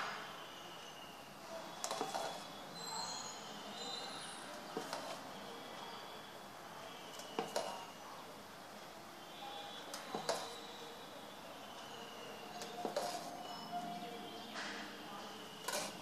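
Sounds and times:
ladle clinking against pot: 1.8 - 2.4, 7.2 - 7.9, 9.9 - 10.6, 12.6 - 13.6.

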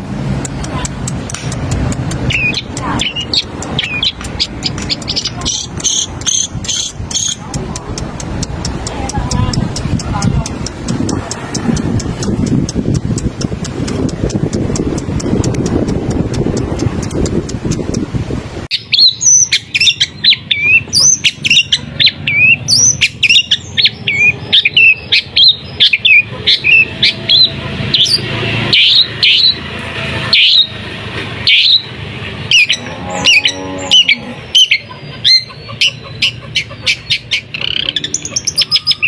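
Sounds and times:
bird chirping and whistling: 2.2 - 7.4, 18.7 - 29.6, 30.3 - 30.7, 31.5 - 31.9, 32.5 - 39.0.

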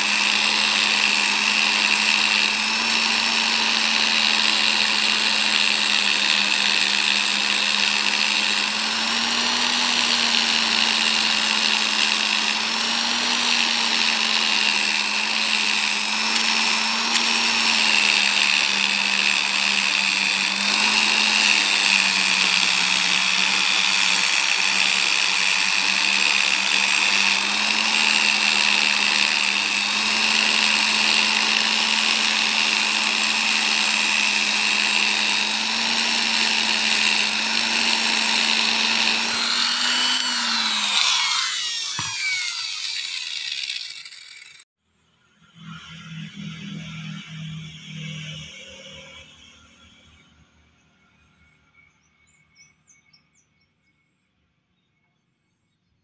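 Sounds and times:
rotary tool motor whirr: 0.0 - 44.7.

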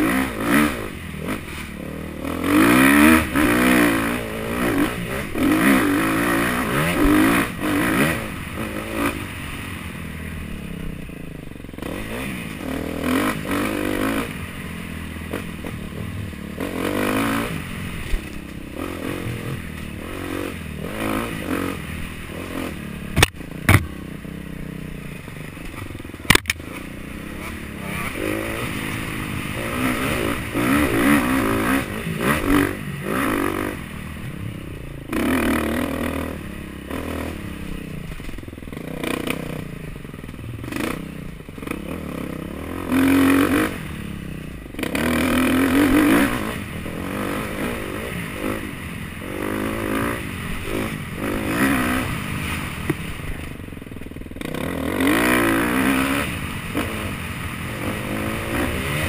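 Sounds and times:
dirt bike engine revving: 0.0 - 59.0
sharp knocks: 23.2 - 23.9.

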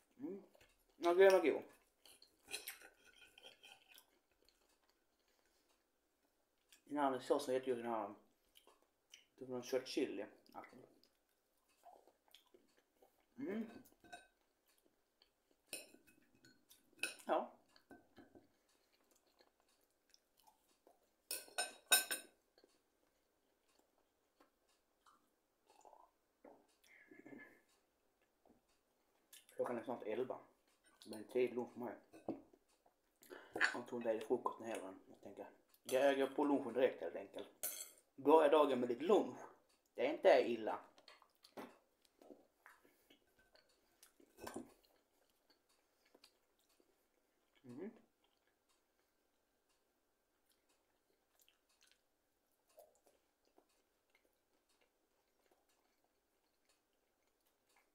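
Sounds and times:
cutlery and dishes clinking: 1.2 - 4.1, 13.7 - 14.4, 15.6 - 18.5, 21.2 - 22.5, 32.0 - 32.6, 37.6 - 38.1, 44.3 - 44.8
man chewing: 1.8 - 6.9, 8.3 - 9.4, 10.4 - 17.0, 17.6 - 21.6, 22.3 - 29.6, 30.6 - 31.2, 32.5 - 33.8, 39.5 - 40.0, 40.9 - 57.9.

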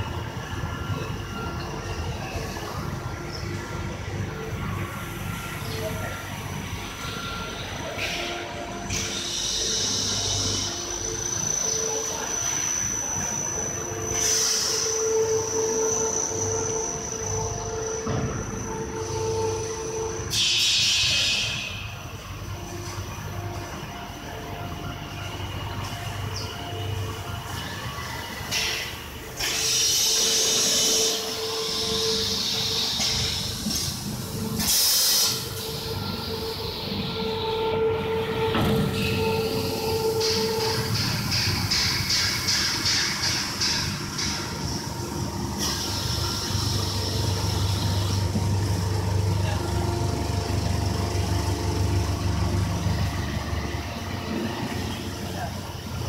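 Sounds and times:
high steady machine whine: 0.0 - 56.0
machine hum: 0.0 - 56.0
air hiss: 8.9 - 11.0, 29.4 - 35.9, 45.6 - 48.2.

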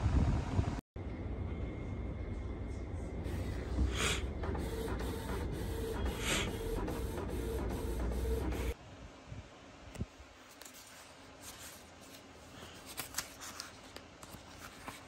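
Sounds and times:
printer whirring: 3.2 - 8.8
print head rushing sweeps: 3.3 - 8.8.

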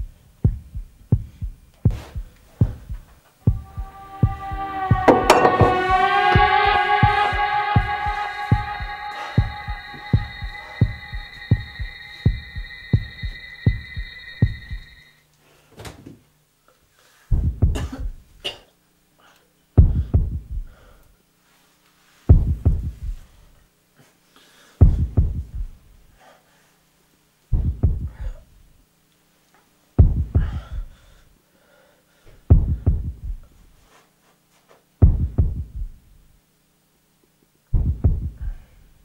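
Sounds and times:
heartbeat thumps: 0.0 - 15.0, 17.3 - 18.3, 19.8 - 20.7, 22.3 - 23.3, 24.8 - 25.9, 27.5 - 28.3, 30.0 - 31.0, 32.5 - 33.5, 35.0 - 36.1, 37.7 - 38.6
held musical chord: 3.4 - 15.1
low hum: 3.4 - 15.2.

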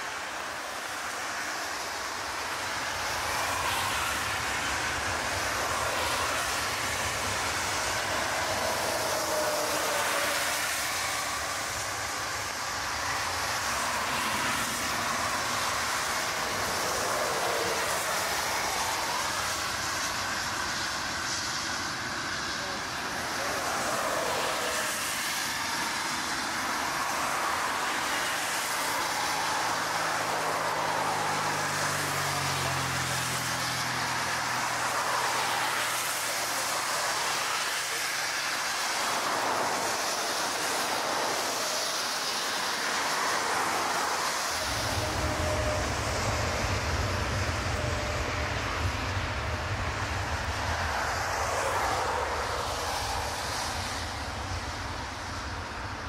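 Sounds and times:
jet engine noise: 0.0 - 56.0
heavy low rumble: 44.6 - 51.3.

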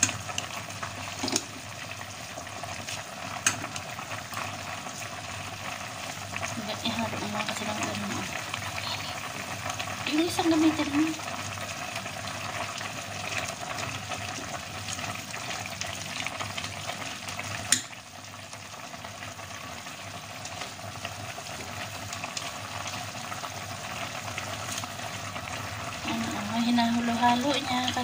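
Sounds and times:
broth bubbling in a pot: 0.0 - 28.0
noodles stirred with tongs: 2.6 - 8.4.

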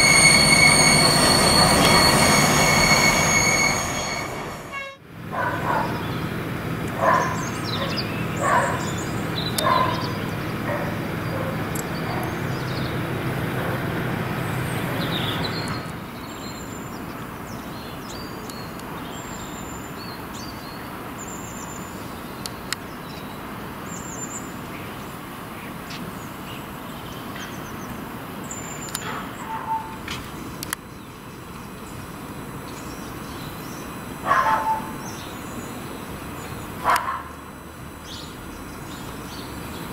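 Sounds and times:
small birds chirping: 7.0 - 13.0.

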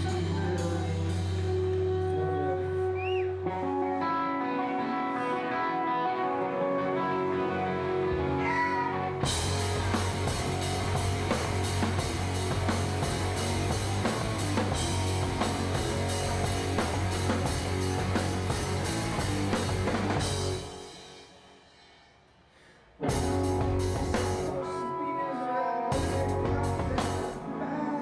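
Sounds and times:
live rock band playing: 0.0 - 21.7, 23.0 - 28.0
drums on a steady beat: 9.2 - 22.0, 23.0 - 24.6, 26.0 - 27.4.

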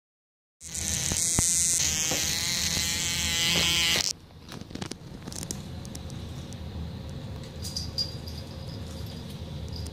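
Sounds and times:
small electric motor buzzing: 0.6 - 4.1.

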